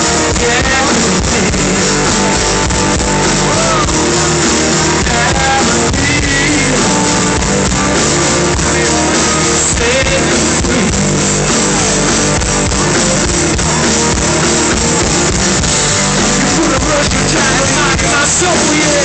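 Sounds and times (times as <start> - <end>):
man singing: 0.0 - 2.4, 3.4 - 7.5, 8.4 - 11.2, 16.1 - 19.0
guitar: 0.0 - 19.0.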